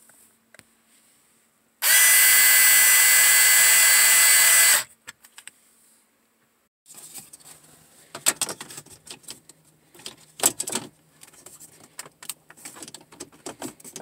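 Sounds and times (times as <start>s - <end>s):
power screwdriver driving screw: 1.8s - 4.9s.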